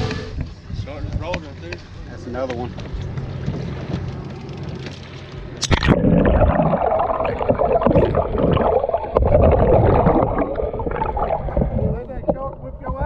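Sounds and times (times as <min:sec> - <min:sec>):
splash: 0:05.6 - 0:11.9
water washing at surface: 0:05.6 - 0:12.4
muffled underwater gurgling: 0:05.6 - 0:13.0.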